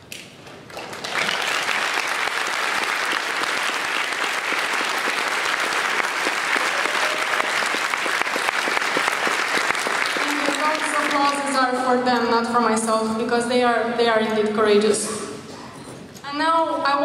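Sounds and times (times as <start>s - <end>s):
audience applauding: 0.7s - 11.6s.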